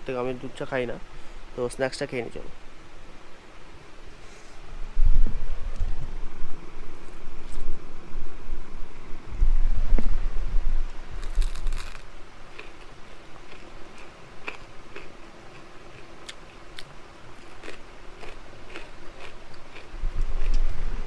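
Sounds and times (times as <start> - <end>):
crunchy snack chewing: 11.2 - 20.6.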